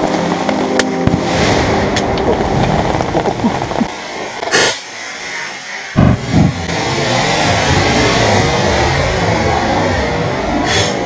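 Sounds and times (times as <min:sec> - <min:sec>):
rifle shot: 0:06.0 - 0:06.7.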